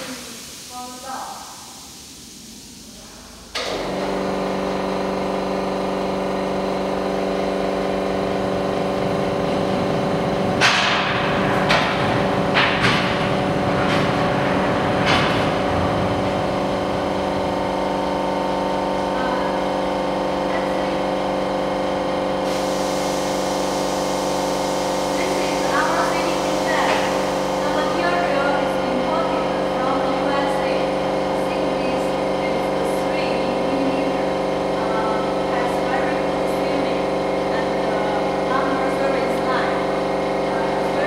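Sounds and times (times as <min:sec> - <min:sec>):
hiss: 0:00.0 - 0:03.2, 0:22.4 - 0:28.8
machine motor humming: 0:00.0 - 0:41.0.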